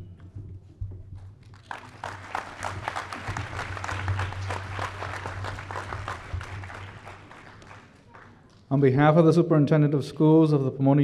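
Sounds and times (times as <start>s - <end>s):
crowd clapping: 1.4s - 8.7s.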